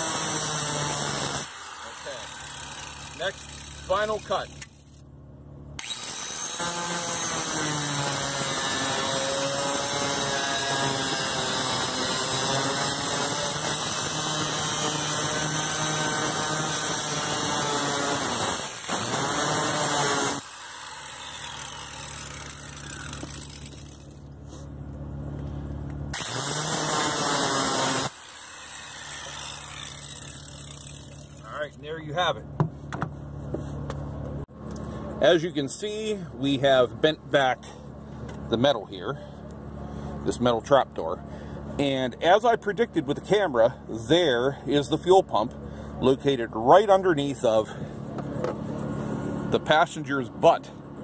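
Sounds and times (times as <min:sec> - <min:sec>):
angle grinder cutting steel: 0:00.0 - 0:05.0, 0:05.8 - 0:24.3, 0:26.2 - 0:31.6.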